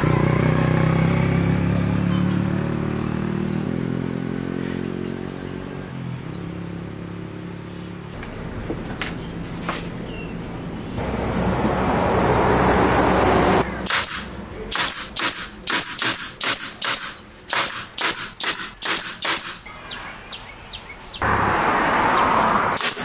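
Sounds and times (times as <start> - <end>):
loud rushing noise: 11.0 - 14.3
nail gun shots: 13.8 - 19.7, 22.8 - 23.0.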